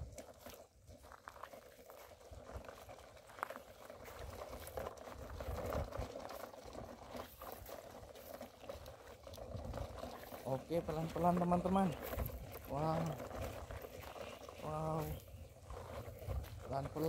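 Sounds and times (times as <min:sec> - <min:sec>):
toy truck wheels crunching over sand: 0:00.0 - 0:17.0.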